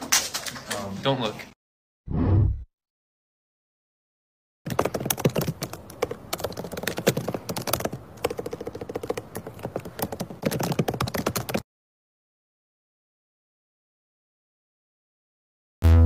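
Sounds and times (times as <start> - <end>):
fast typing on keyboard: 4.7 - 11.6.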